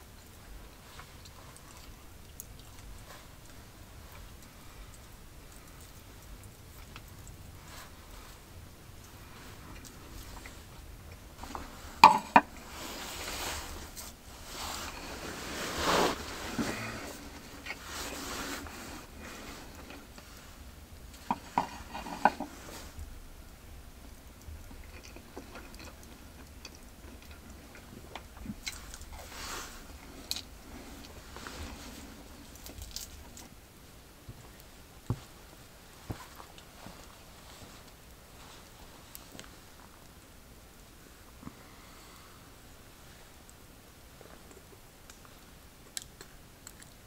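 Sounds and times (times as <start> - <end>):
soft rustling: 0.0 - 23.2, 27.0 - 40.2
tableware clinking: 12.0 - 12.4.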